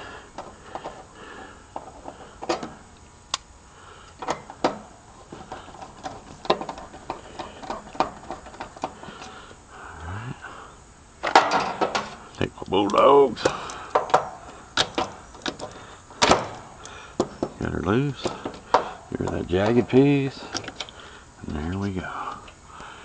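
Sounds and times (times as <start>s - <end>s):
handling clatter: 4.2s - 9.3s, 17.2s - 22.6s.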